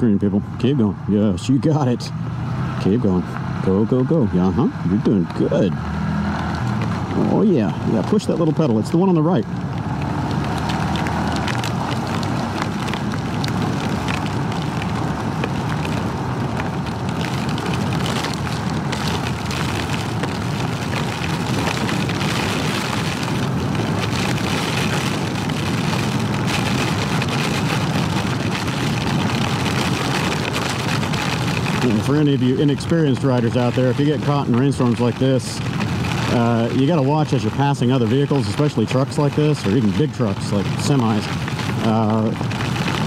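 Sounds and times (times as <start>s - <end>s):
heavy rain on microphone: 0.0s - 43.0s
wind buffeting microphone: 0.0s - 43.0s.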